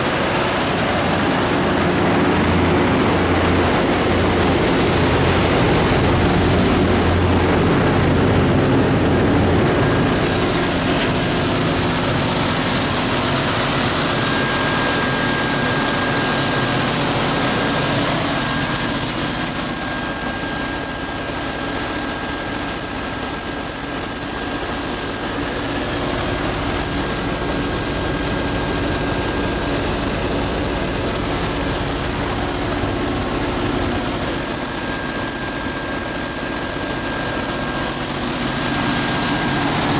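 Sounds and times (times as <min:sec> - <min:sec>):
diesel engine roar: 0:00.0 - 0:20.0
high-pitched whine: 0:00.0 - 0:39.9.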